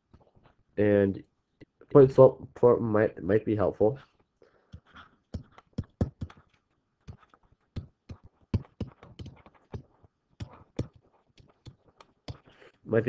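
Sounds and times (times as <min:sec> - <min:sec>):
stylus tapping and scratching on tablet: 0:00.0 - 0:00.6, 0:04.0 - 0:12.9.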